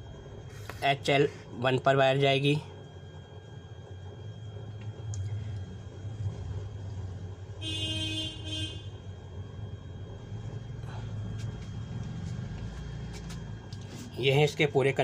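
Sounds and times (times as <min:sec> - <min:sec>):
vehicle horn: 0:07.6 - 0:09.0
traffic rumble: 0:09.8 - 0:14.9.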